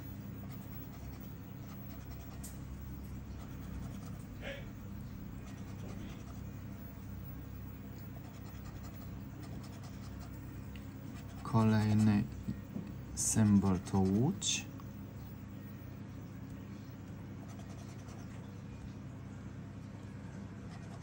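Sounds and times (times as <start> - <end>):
scratching lottery ticket coating: 0.0 - 4.4, 5.0 - 12.4, 13.2 - 14.6, 17.4 - 18.4
steady low hum: 0.0 - 21.0.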